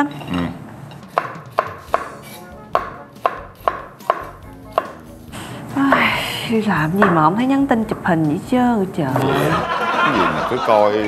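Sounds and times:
cleaver chopping on wooden board: 1.1 - 5.0.

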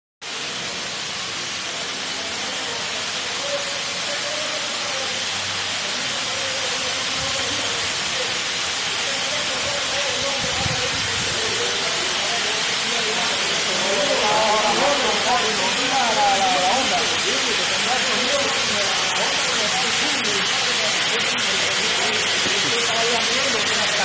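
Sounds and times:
steam hissing: 0.2 - 24.0
faint voices: 9.0 - 24.0.

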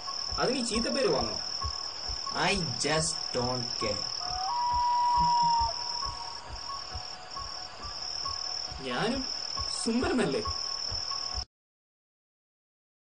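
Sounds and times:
insects trilling: 0.0 - 11.5
held tone: 4.0 - 7.0.

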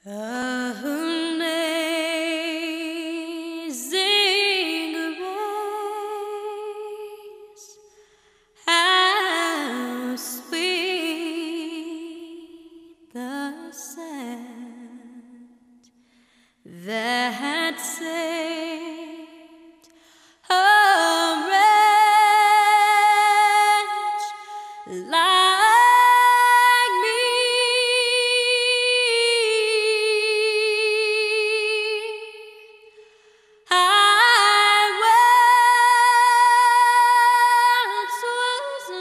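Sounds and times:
female voice singing: 0.0 - 7.8, 20.5 - 32.8, 33.7 - 39.0.

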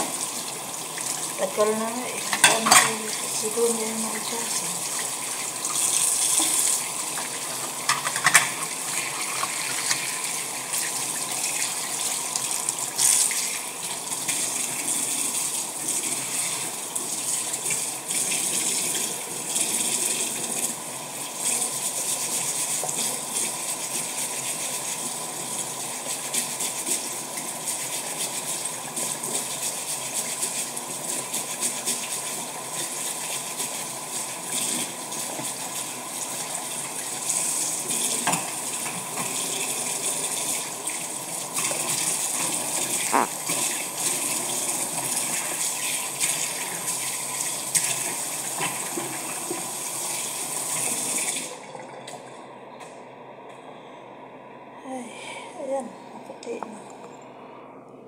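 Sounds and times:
tap water running into sink: 0.0 - 52.2.

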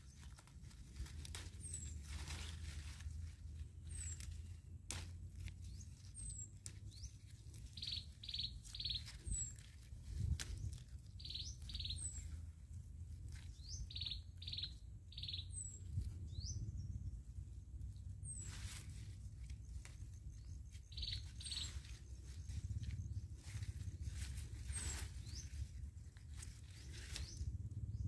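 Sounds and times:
birds singing: 5.6 - 9.8, 10.6 - 12.4, 13.5 - 17.2, 19.6 - 25.7.

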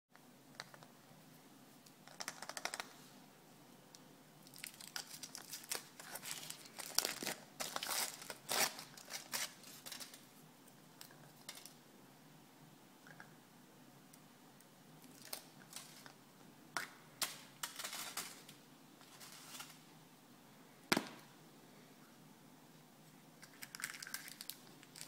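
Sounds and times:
foil wrapper crinkling: 4.5 - 10.2, 23.6 - 25.0.

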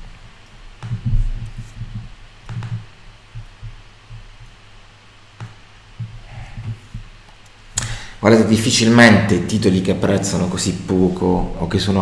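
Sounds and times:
low dull thuds: 0.7 - 4.7, 5.3 - 7.2
computer mouse clicking: 0.8 - 3.7.

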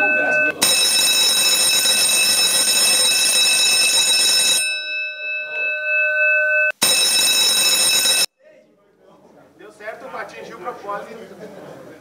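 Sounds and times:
electric alarm bell ringing: 0.0 - 8.3.

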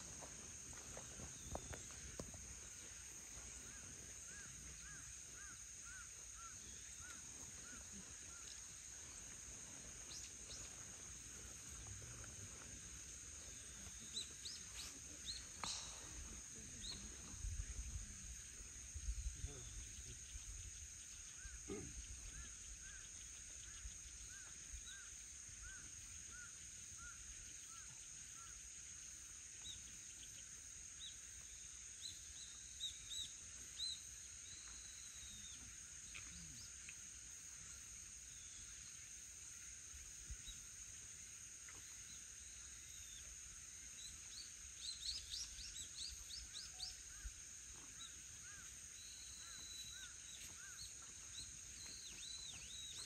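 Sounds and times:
high-pitched insect drone: 0.0 - 53.0
birds chirping: 44.3 - 53.0.

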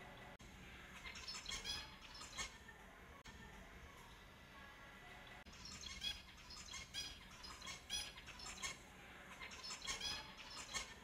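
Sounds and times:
finches calling: 0.8 - 2.6, 5.5 - 11.0.

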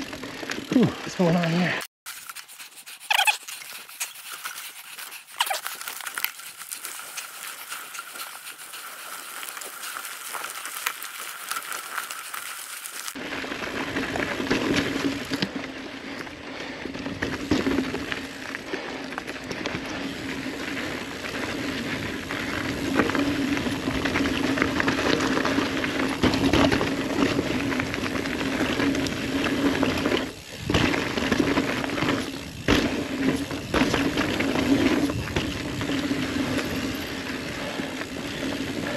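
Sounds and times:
bike rattling over bumps: 0.0 - 1.2, 4.2 - 38.9
tyres crunching over dirt and leaves: 2.1 - 15.7.

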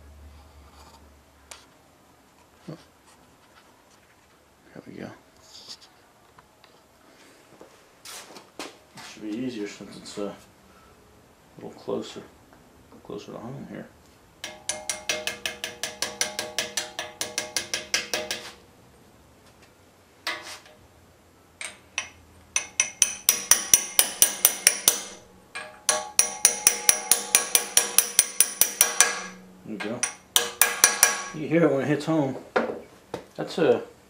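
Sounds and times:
hammer tapping metal socket: 14.4 - 18.6, 21.6 - 31.4.

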